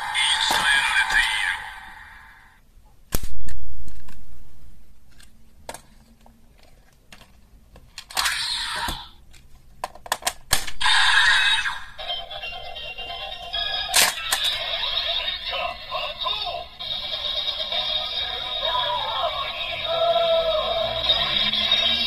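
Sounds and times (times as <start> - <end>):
plastic toy parts snapping: 6.6 - 10.8, 13.9 - 14.6
toy belt electronic sound: 11.9 - 22.0.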